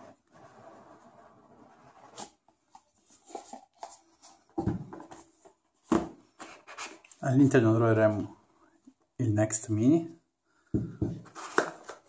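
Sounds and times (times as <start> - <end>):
box dull thump: 5.9 - 6.2, 10.7 - 11.3.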